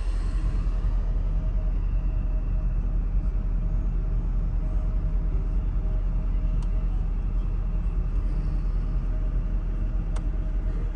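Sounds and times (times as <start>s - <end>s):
car engine low rumble: 0.0s - 10.9s
small click: 10.1s - 10.3s.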